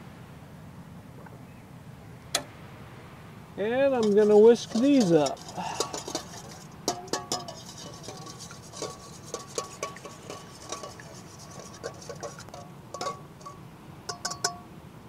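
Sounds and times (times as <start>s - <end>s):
whisk beating in metal bowl: 4.0s - 14.6s
bowl ringing faintly: 4.0s - 14.8s.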